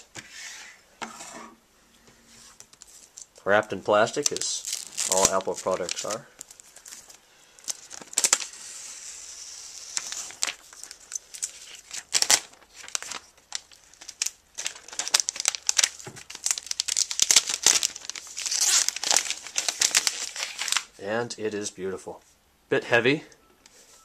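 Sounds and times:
plastic film crinkling: 2.4s - 21.0s.

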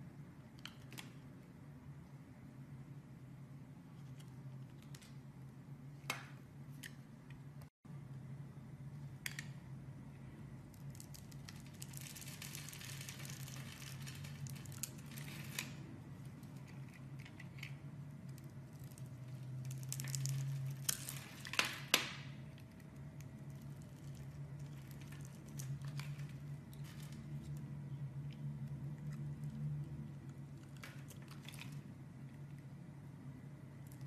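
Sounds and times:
low steady hum: 0.0s - 34.0s
soap cubes crackling and crumbling: 10.3s - 32.5s.

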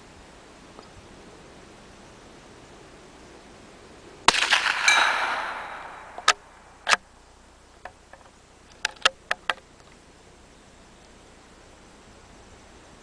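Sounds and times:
rifle shot echoing: 4.3s - 7.0s.

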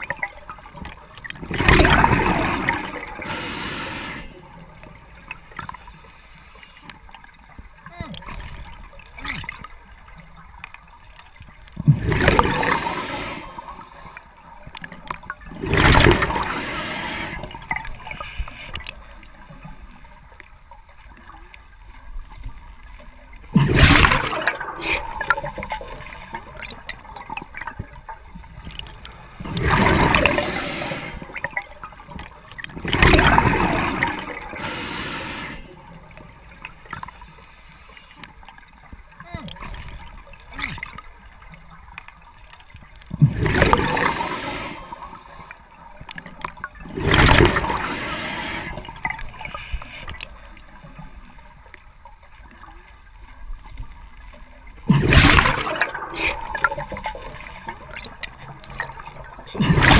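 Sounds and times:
faint regulator hiss: 3.1s - 7.6s, 12.4s - 14.8s, 16.3s - 20.4s, 24.6s - 32.3s, 34.4s - 38.8s, 43.9s - 46.6s, 47.7s - 54.7s.

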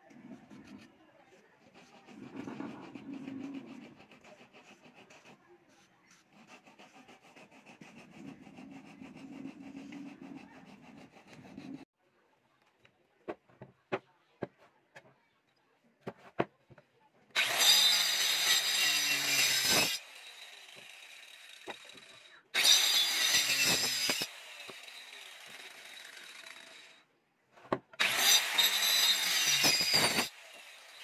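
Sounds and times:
circular saw cutting wood: 1.6s - 5.5s, 6.1s - 11.9s, 17.4s - 27.1s, 28.0s - 31.0s.

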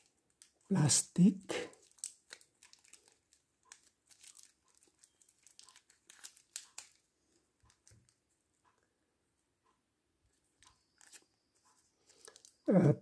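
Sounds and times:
plastic wrap crinkling: 0.0s - 0.6s, 1.5s - 8.3s, 10.6s - 12.7s.

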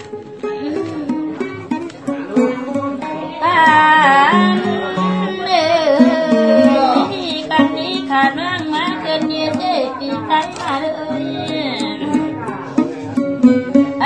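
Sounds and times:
plucked string accompaniment: 0.0s - 14.0s
ornamented wavering melody: 2.4s - 9.6s
person singing: 2.5s - 12.6s.

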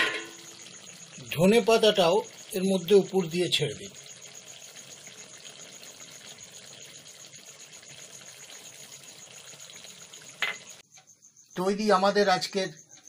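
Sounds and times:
gravy simmering in a pan: 0.0s - 11.2s.

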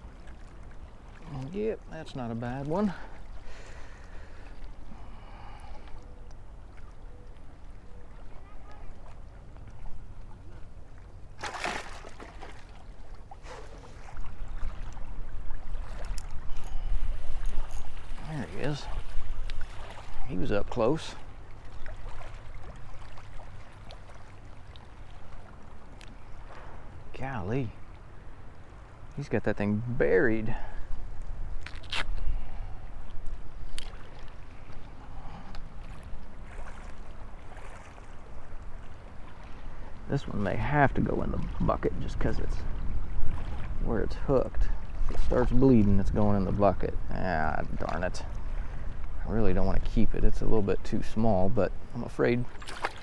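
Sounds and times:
small waves lapping shoreline: 0.0s - 53.0s
wind buffeting microphone: 36.4s - 51.9s.

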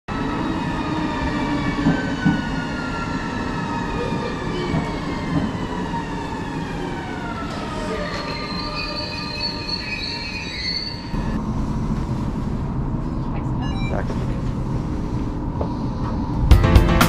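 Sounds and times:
train wheels rumbling on rails: 0.7s - 9.1s.

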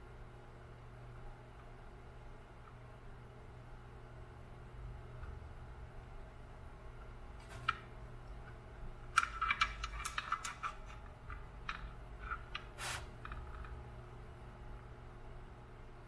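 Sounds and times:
small clicks of wires and metal: 7.4s - 13.8s
brief hiss: 12.8s - 13.2s.

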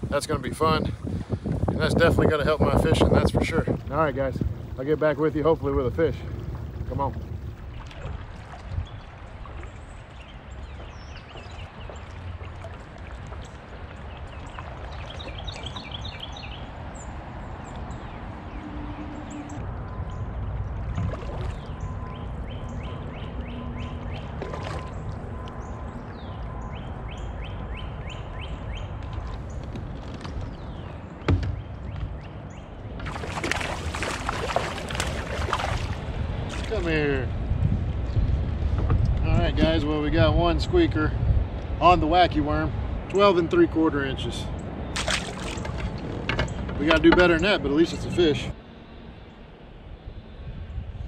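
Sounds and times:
birds chirping: 0.0s - 37.3s, 40.6s - 51.0s
water noise: 0.0s - 49.8s
wind rumble: 0.0s - 51.0s
water splashing against kayak: 5.6s - 16.2s, 19.6s - 22.4s, 23.8s - 25.7s, 32.9s - 37.0s, 44.9s - 46.4s.

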